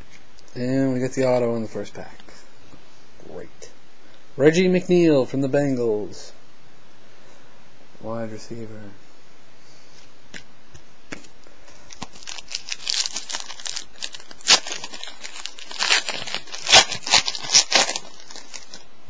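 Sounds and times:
plastic wrapper tearing and crinkling: 11.9s - 18.9s.

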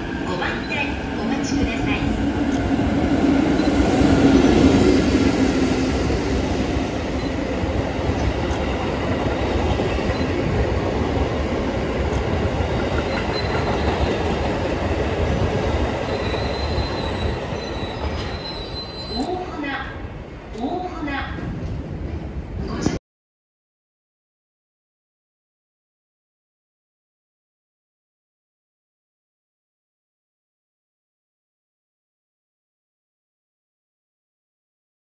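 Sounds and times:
electric locomotive hum: 0.0s - 20.8s
steel wheels rumbling on rail: 0.0s - 22.9s.

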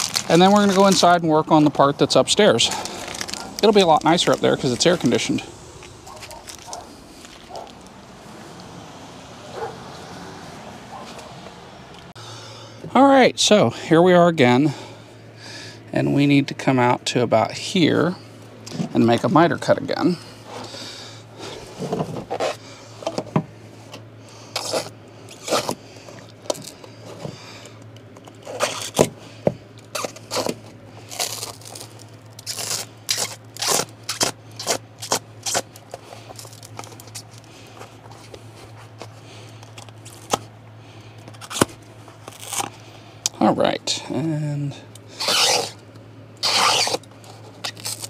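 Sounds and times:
knife cutting foam: 45.2s - 45.8s, 46.4s - 47.0s.

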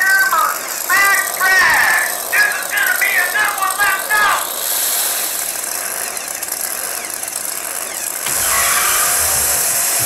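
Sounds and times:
drag trucks engines roaring: 0.0s - 10.0s.

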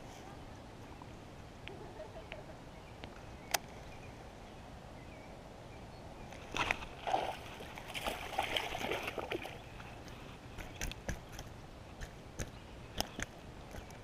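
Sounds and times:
fish splashing at water surface: 6.5s - 9.7s.

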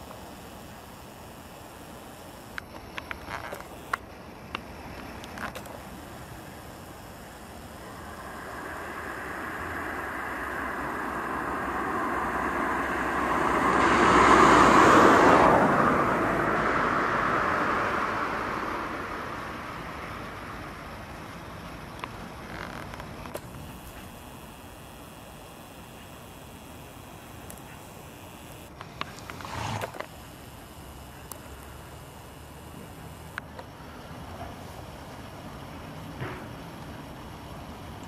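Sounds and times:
sharp clicks: 0.0s - 15.6s, 22.0s - 33.7s
road vehicle passing: 7.7s - 21.4s, 28.4s - 33.4s.

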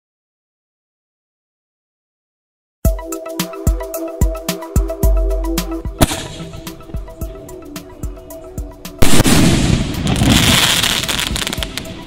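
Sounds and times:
background music: 2.9s - 12.0s
firework bang: 6.0s - 6.6s, 9.0s - 11.9s
firework crackle: 9.0s - 12.0s.

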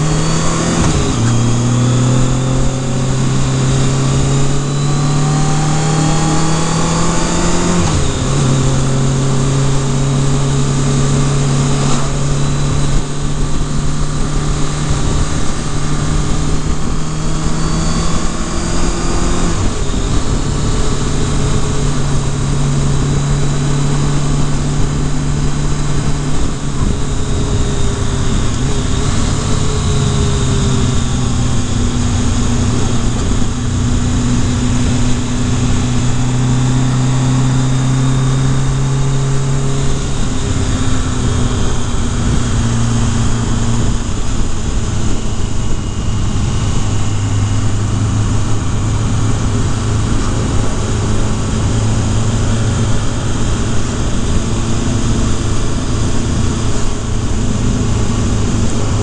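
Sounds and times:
motorcycle engine running: 0.0s - 59.0s
wind rush: 0.0s - 59.0s.

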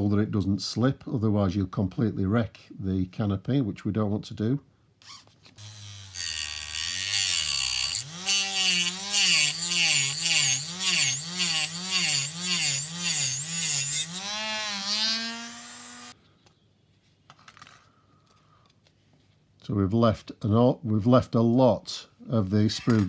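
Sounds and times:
rotary tool whine: 5.0s - 16.2s.

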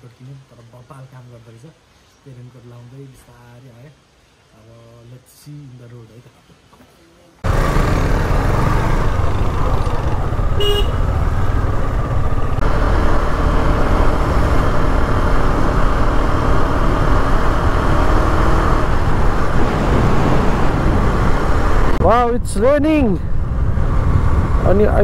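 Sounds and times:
motorcycle engine and road noise: 7.4s - 25.0s
vehicle horn toot: 10.6s - 11.1s.

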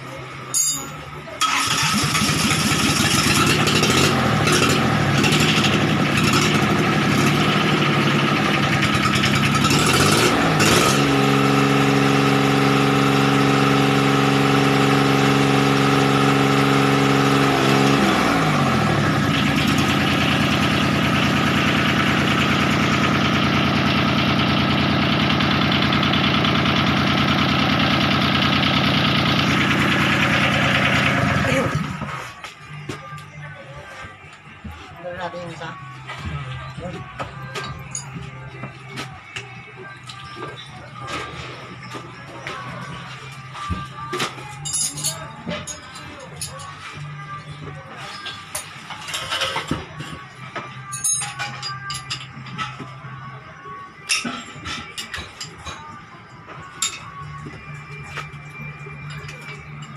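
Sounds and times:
diesel engine running: 0.0s - 44.4s.

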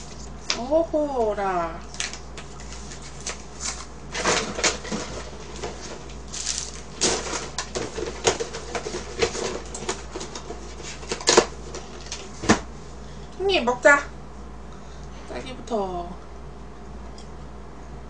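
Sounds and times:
packaging crinkling: 1.9s - 12.3s.

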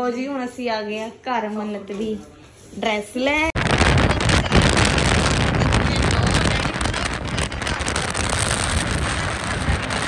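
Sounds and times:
wind buffeting microphone: 3.3s - 10.0s
engine and road rumble: 3.6s - 10.0s.

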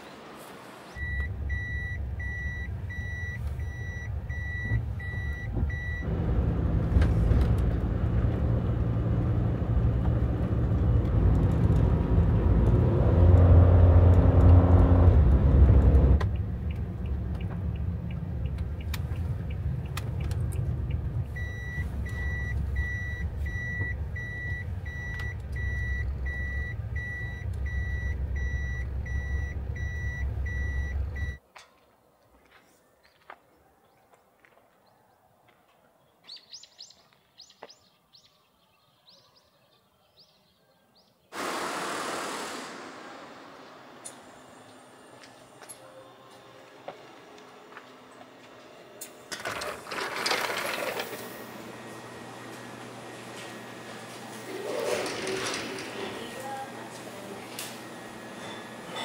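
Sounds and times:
van engine and tyre noise: 0.0s - 31.5s, 41.3s - 59.0s
reverse warning buzzer beeping: 1.0s - 6.1s, 21.4s - 31.4s.

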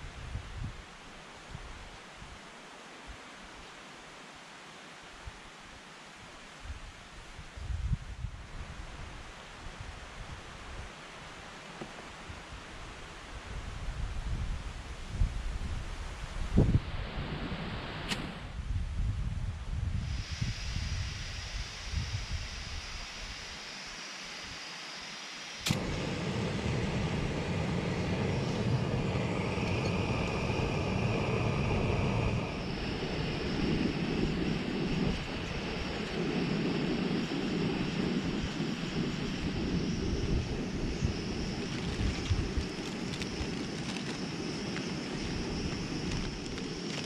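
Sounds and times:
gas burner hissing: 19.8s - 47.0s
gas stove igniter click: 25.6s - 26.4s.

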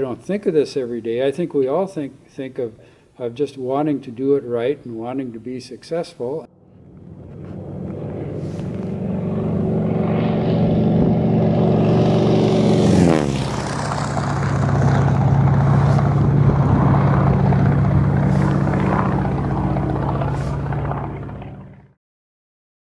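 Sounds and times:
biplane engine droning: 6.5s - 22.0s.

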